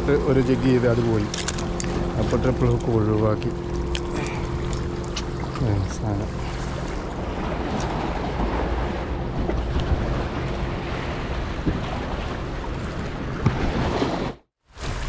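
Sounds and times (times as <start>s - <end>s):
wind buffeting microphone: 0.0s - 14.1s
sea waves on shore: 0.0s - 15.0s.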